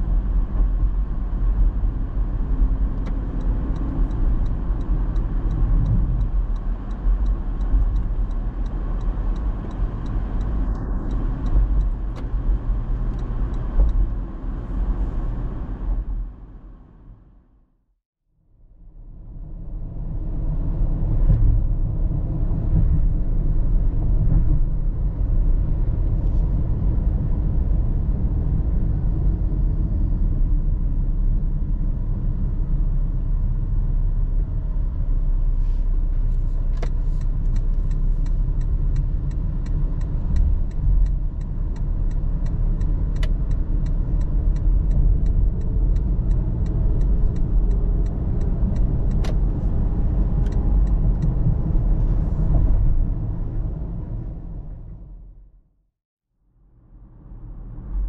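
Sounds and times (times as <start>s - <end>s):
road and engine rumble in car: 0.0s - 17.7s, 18.4s - 55.7s, 56.5s - 58.0s
turn signal clicking: 2.9s - 14.2s, 36.6s - 51.8s.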